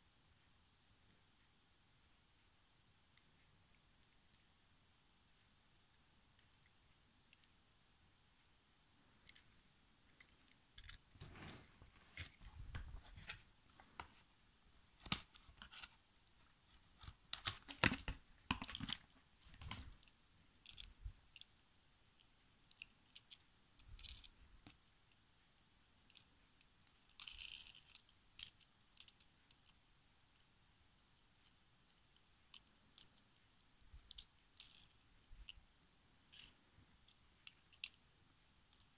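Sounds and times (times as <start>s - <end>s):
toy cars and packaging handling: 10.2s - 14.2s, 16.7s - 21.0s, 26.1s - 29.8s, 34.0s - 35.6s.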